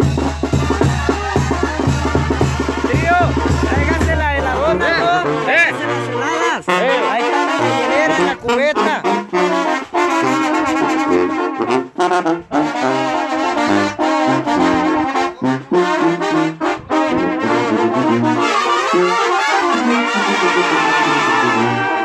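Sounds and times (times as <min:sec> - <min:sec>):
bass drum snare and cymbal: 0:00.0 - 0:04.7
brass band playing: 0:00.0 - 0:22.0.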